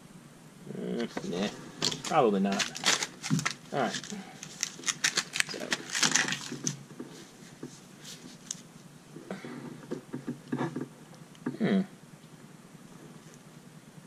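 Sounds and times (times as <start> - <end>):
gloved hands rubbing pen: 1.6 - 8.7.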